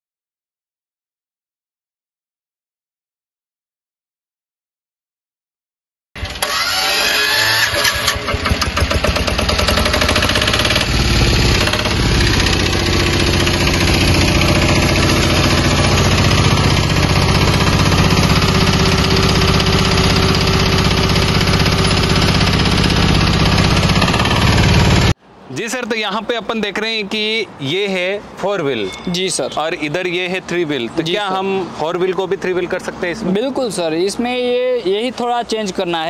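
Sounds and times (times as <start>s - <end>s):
tractor diesel engine running: 6.2s - 25.2s.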